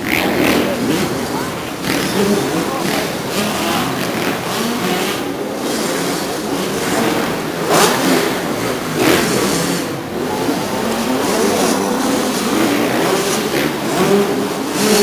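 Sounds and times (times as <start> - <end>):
motocross bikes revving: 0.0 - 15.0.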